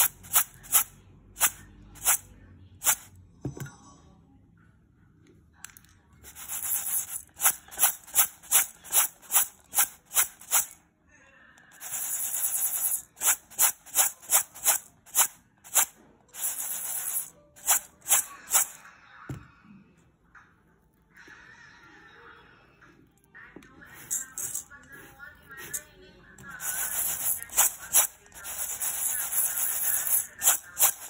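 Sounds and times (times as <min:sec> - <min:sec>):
sharp shakes of rice: 0:00.0 - 0:02.2, 0:06.2 - 0:10.8, 0:11.8 - 0:18.8
rice grains sliding in metal bowl: 0:26.6 - 0:31.0.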